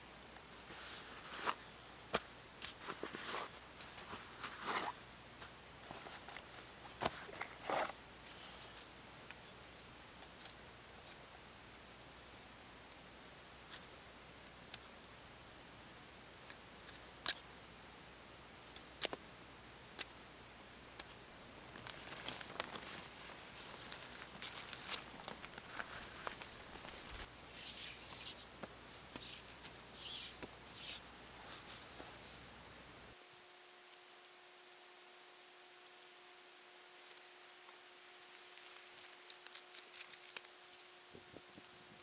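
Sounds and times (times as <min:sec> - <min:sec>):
soft rustling: 0:00.4 - 0:12.4, 0:21.7 - 0:32.6.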